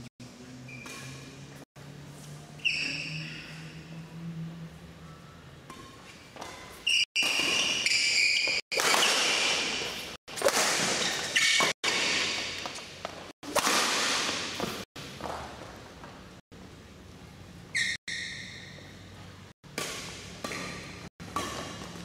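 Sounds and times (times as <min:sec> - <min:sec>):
shoes squeaking on court floor: 0:00.6 - 0:01.4, 0:02.2 - 0:03.8, 0:05.7 - 0:13.3, 0:17.7 - 0:22.0
rackets hitting shuttlecock: 0:05.7 - 0:15.5, 0:19.7 - 0:22.0.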